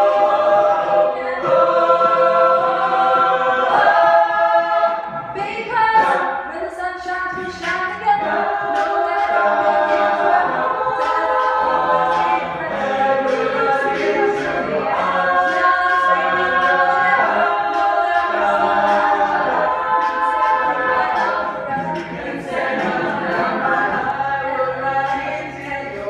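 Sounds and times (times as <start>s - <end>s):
a cappella group singing: 0.0s - 26.0s
woman singing lead: 5.3s - 12.8s.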